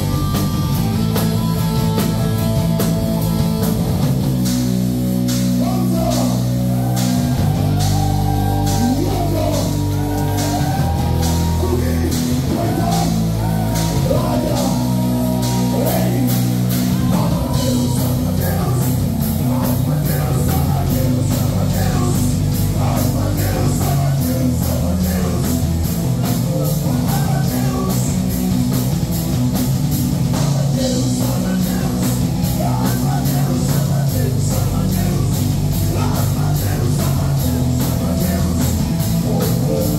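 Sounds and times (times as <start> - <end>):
drum kit with cymbals: 0.0 - 39.9
live rock band playing: 0.0 - 39.9
man singing: 5.6 - 6.5, 8.4 - 28.4, 30.4 - 39.9.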